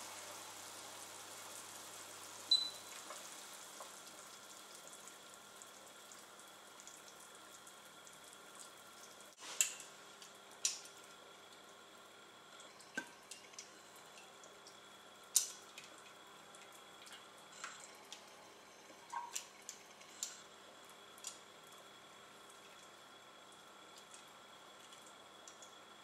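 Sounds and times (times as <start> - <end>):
liquid dripping: 12.5 - 25.9.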